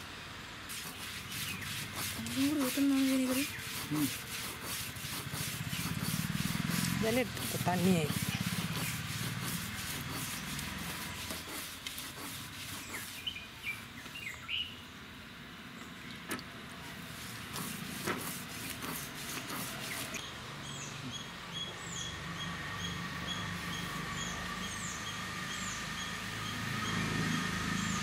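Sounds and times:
birds chirping: 0.0s - 28.0s
stone scraping on stone: 0.7s - 13.3s.

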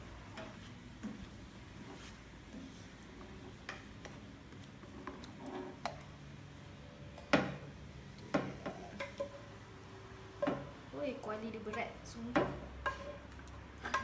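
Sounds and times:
spatula scraping frying pan: 4.8s - 6.0s, 12.8s - 14.0s.

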